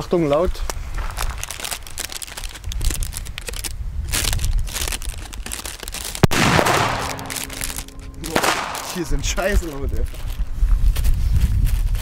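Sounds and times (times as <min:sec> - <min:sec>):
firecrackers cracking and banging: 0:05.4 - 0:09.8.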